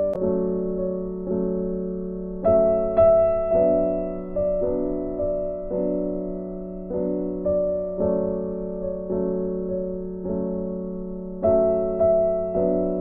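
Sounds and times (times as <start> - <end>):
gentle piano chords: 0.0 - 13.0.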